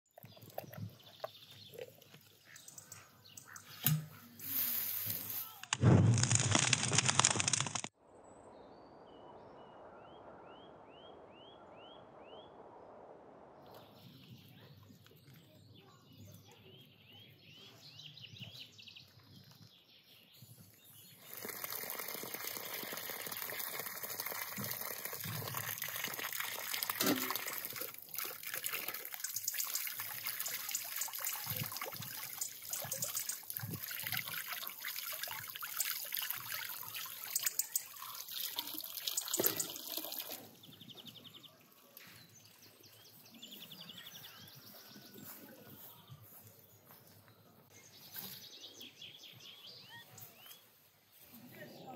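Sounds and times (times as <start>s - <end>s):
water pouring from hose: 3.8s - 7.9s, 21.1s - 40.7s
faint outdoor ambience: 8.0s - 51.9s
water splashing over chickens: 21.2s - 40.7s.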